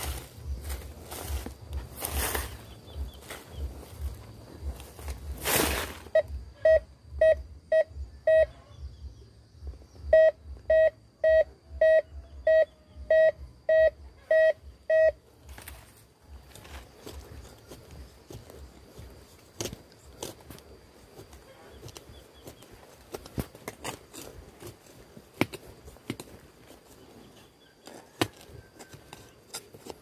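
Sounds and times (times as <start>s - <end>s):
metal detector beeping: 6.0s - 8.6s, 10.0s - 15.2s.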